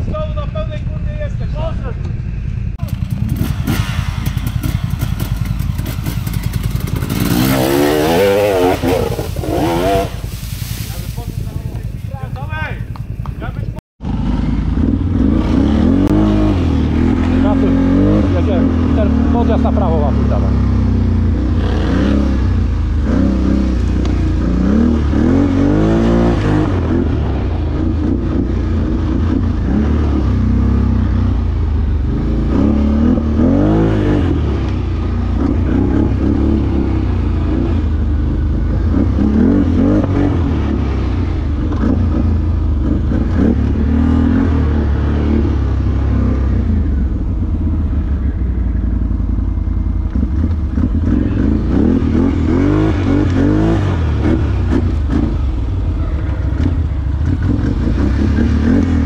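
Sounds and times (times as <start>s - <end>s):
quad engine revving: 2.8s - 59.0s.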